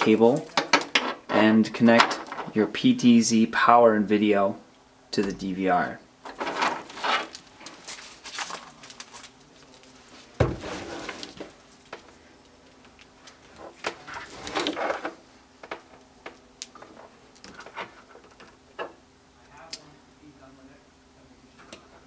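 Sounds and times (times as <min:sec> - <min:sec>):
plastic wrap crinkling: 0:06.4 - 0:11.9.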